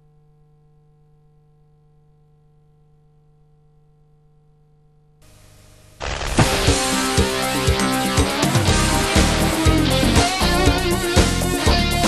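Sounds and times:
faint electrical hum: 0.0 - 6.5
soft hiss: 5.2 - 7.5.

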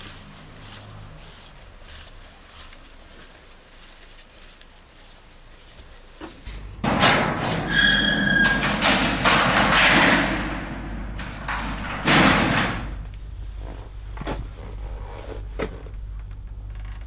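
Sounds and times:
heavy door scraping and thudding: 6.8 - 14.6.

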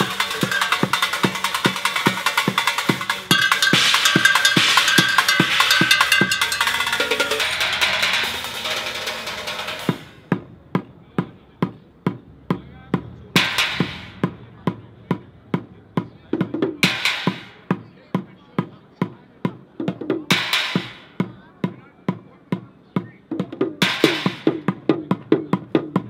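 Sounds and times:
ringing metal crash: 0.0 - 10.0
drumming on pots and buckets: 0.0 - 26.0.

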